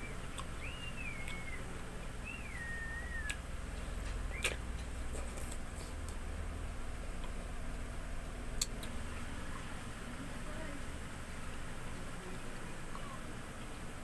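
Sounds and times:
mouth clicks of eating: 0:00.2 - 0:02.1, 0:02.9 - 0:06.2, 0:08.2 - 0:09.0.

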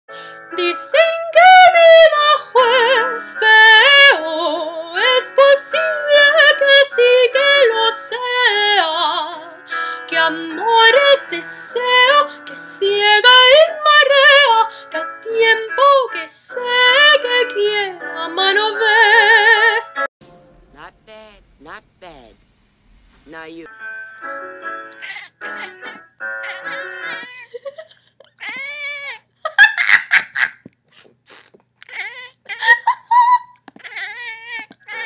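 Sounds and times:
girl singing slow melody: 0:00.2 - 0:20.0.

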